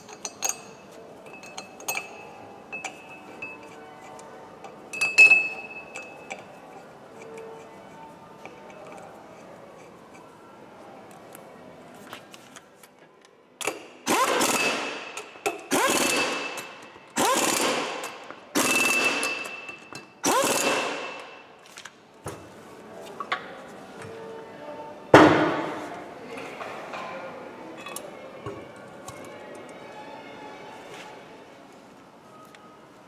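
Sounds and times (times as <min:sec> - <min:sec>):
pneumatic impact wrench hammering: 0:13.6 - 0:21.3.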